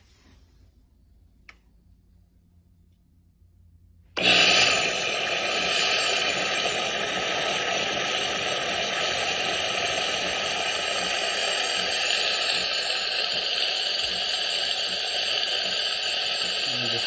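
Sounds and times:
steam hissing: 0:04.2 - 0:17.0.

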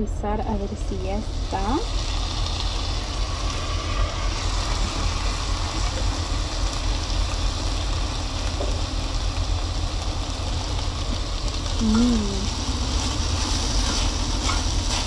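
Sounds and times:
food sizzling in a pot: 0:00.3 - 0:15.0
even hiss: 0:11.8 - 0:13.8.

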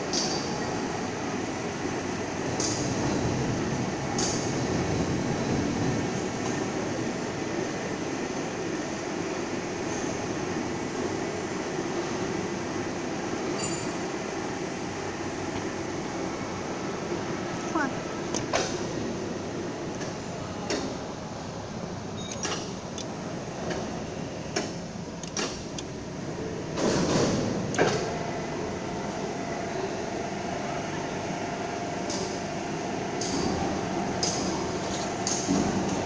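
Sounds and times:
sharp clicks and clanks: 0:22.2 - 0:23.1, 0:24.6 - 0:25.9.

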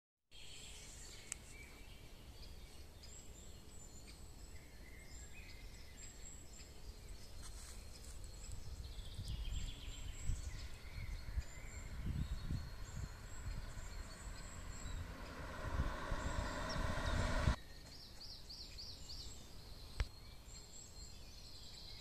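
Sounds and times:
songbirds chirping and warbling: 0:00.4 - 0:22.0
wind rumble on microphone: 0:08.3 - 0:17.6.

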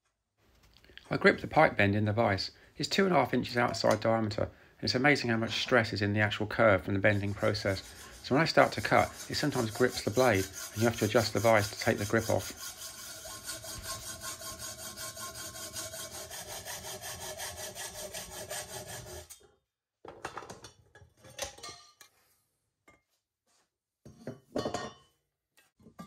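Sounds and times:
hacksaw cutting metal pipe: 0:07.0 - 0:19.4.

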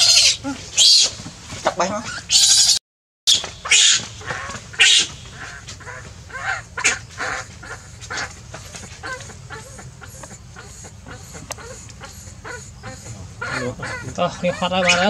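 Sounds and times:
baby monkey screaming and whimpering: 0:00.0 - 0:01.2, 0:02.0 - 0:02.8, 0:03.4 - 0:07.0, 0:09.0 - 0:15.0.

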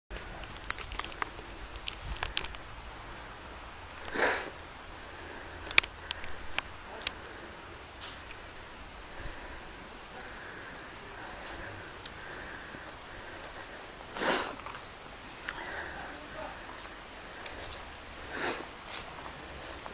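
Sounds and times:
footsteps on dry leaves and twigs: 0:00.1 - 0:02.7, 0:10.2 - 0:19.9
small birds chirping: 0:00.1 - 0:19.9
loud hiss-like bursts: 0:04.1 - 0:04.6, 0:14.1 - 0:14.6, 0:18.3 - 0:18.7.

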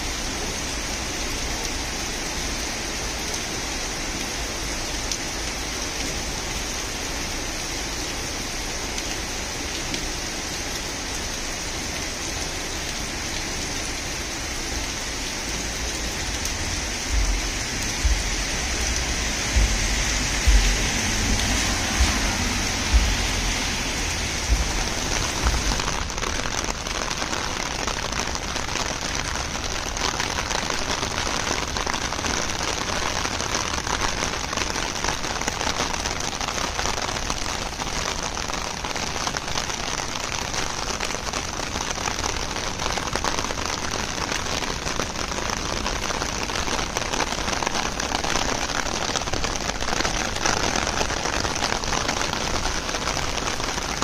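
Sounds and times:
rain on pavement and trees: 0:00.0 - 0:54.0
low rumbling thumps: 0:15.5 - 0:27.0.

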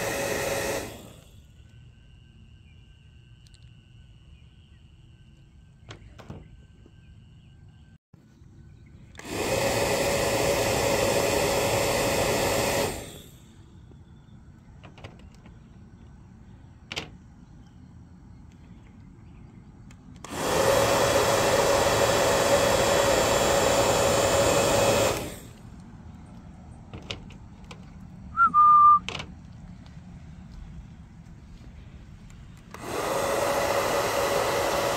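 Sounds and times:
bubble gun motor whirring: 0:00.0 - 0:01.6, 0:09.1 - 0:14.0, 0:20.2 - 0:25.8, 0:32.5 - 0:34.9.

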